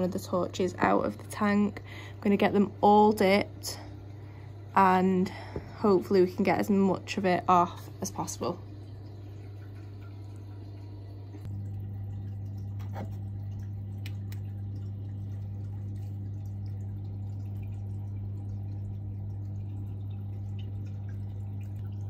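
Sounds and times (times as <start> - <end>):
low electrical hum: 0.0 - 22.0
faint water drips or clicks: 8.0 - 22.0.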